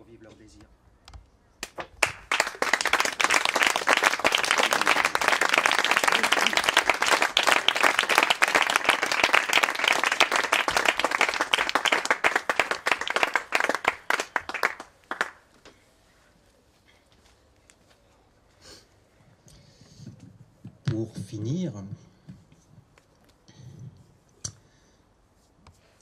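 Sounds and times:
audience applauding: 2.0s - 15.4s.

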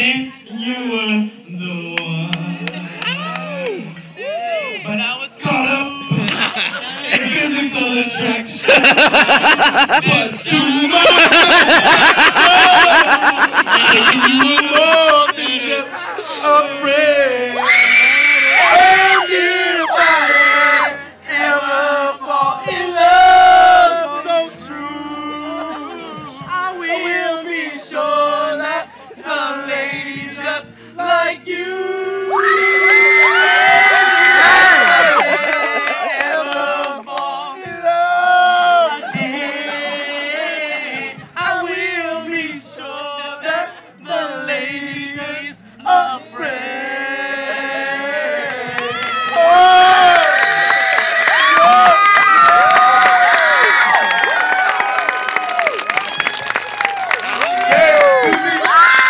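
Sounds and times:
men singing in harmony: 0.0s - 3.0s, 4.9s - 17.7s, 18.6s - 32.7s, 34.6s - 50.2s.

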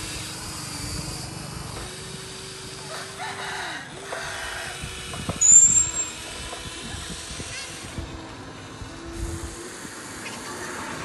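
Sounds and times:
small electric motors whining: 0.0s - 11.0s
high-pitched squeal: 5.4s - 6.2s.

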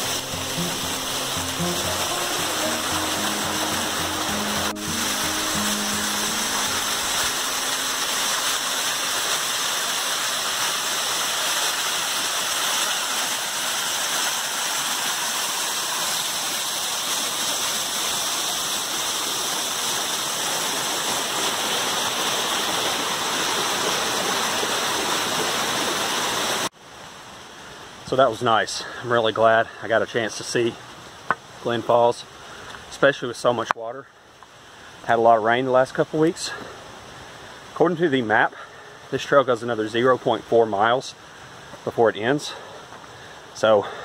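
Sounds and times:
waterfall rushing: 0.0s - 26.7s.

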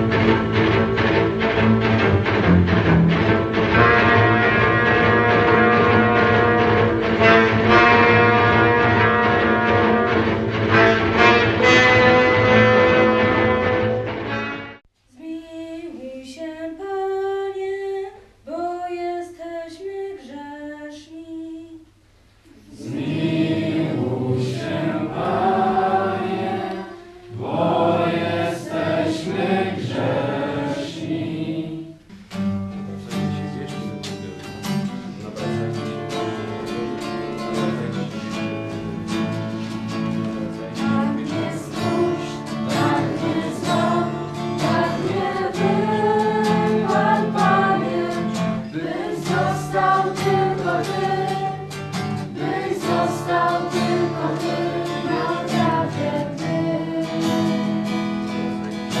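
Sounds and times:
strummed acoustic guitar: 0.0s - 14.8s, 22.8s - 59.0s
group singing a church song: 3.7s - 14.5s, 22.5s - 32.1s, 40.6s - 59.0s
single person singing: 22.5s - 32.1s, 40.7s - 59.0s.

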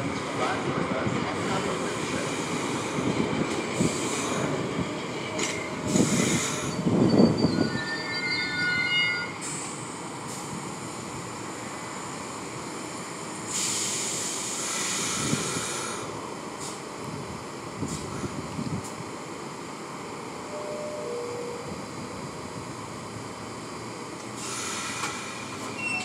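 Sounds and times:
subway train wheels clattering: 0.0s - 7.8s, 21.6s - 26.0s
high-pitched wheel squeal: 7.0s - 9.4s.

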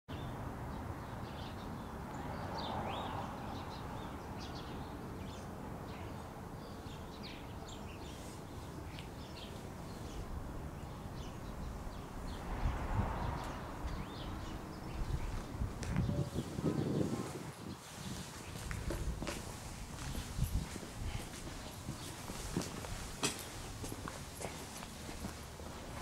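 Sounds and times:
outdoor background noise: 0.1s - 26.0s
small birds chirping: 0.1s - 26.0s.

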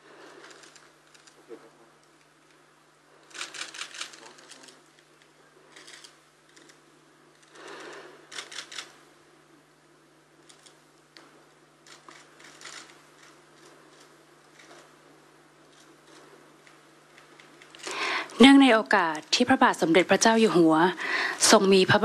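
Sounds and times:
camera shutters firing in bursts: 3.3s - 4.8s, 8.3s - 9.0s.

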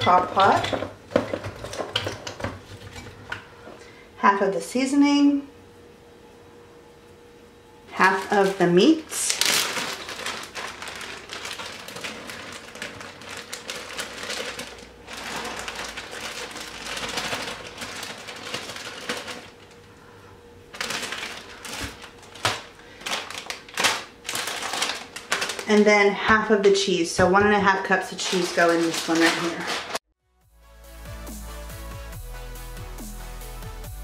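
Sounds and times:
plastic bag crinkling: 7.9s - 20.0s, 20.7s - 26.1s, 27.7s - 30.1s.

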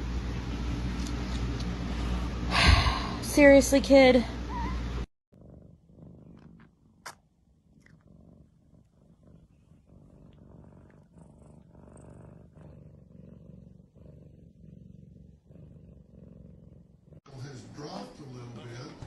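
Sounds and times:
cat purring: 5.4s - 19.0s.

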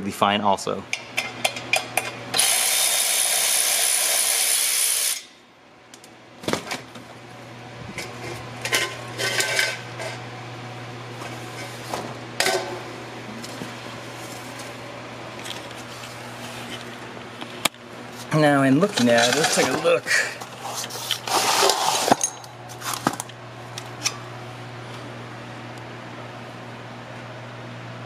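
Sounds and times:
cordless ratchet running: 2.3s - 5.2s.

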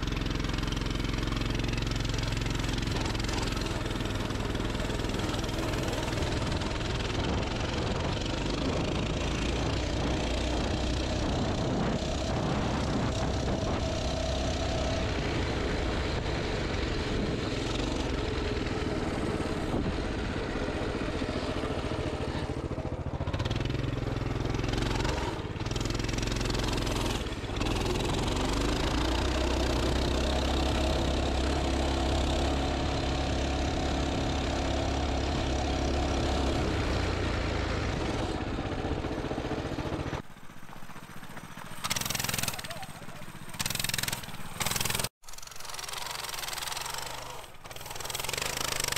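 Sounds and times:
motorbike engine running: 0.0s - 48.9s.

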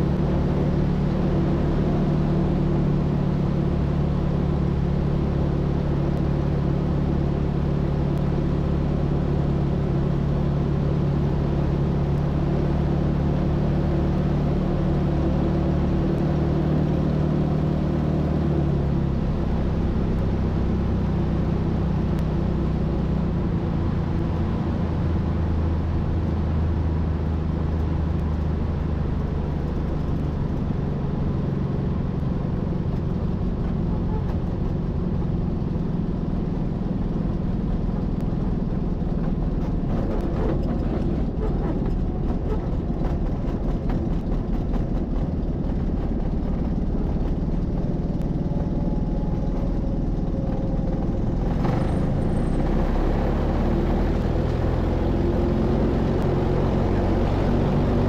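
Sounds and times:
aircraft engine and propeller running: 0.0s - 58.0s
runway rumble: 0.0s - 58.0s
wind: 0.0s - 58.0s.

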